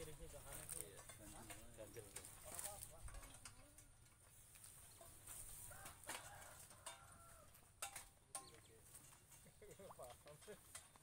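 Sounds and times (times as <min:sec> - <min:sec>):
metal pipes clinking: 0:00.0 - 0:11.0.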